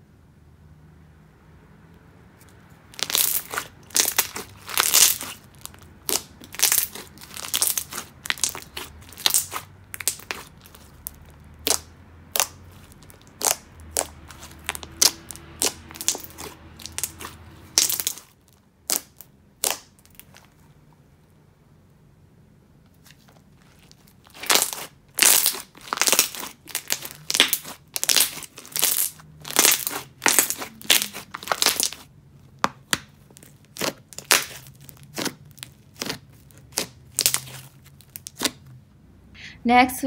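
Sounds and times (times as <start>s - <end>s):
slime bubbles popping: 24.4s - 32.0s.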